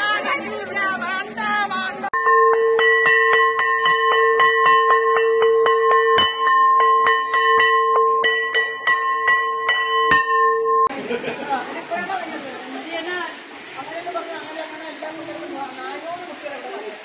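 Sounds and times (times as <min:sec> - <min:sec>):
metal bell struck with mallet: 0:02.2 - 0:10.9.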